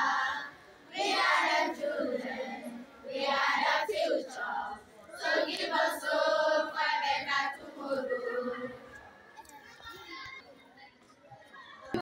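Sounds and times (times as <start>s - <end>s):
children singing in unison: 0.0s - 8.8s.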